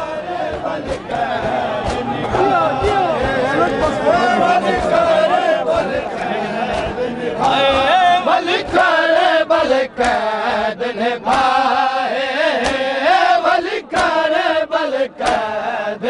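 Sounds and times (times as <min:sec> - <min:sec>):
men chanting: 0:00.0 - 0:16.0
hands slapping bare chests: 0:00.5 - 0:04.0, 0:05.7 - 0:09.3, 0:10.0 - 0:10.5, 0:11.2 - 0:11.8, 0:12.5 - 0:14.5, 0:15.2 - 0:15.5.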